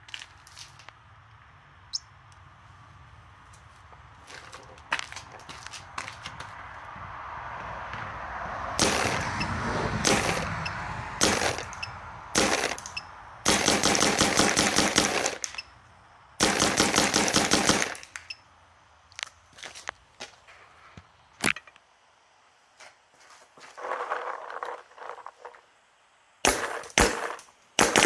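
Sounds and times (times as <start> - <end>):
paintball marker firing: 8.8 - 9.3, 10.0 - 10.5, 11.2 - 15.6, 26.4 - 28.0.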